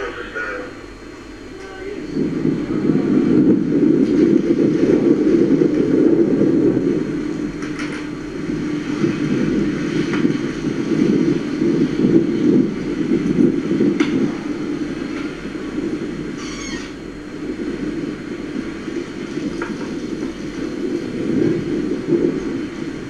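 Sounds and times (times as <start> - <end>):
ship engine rumbling: 0.0 - 23.0
wind on deck: 0.0 - 23.0.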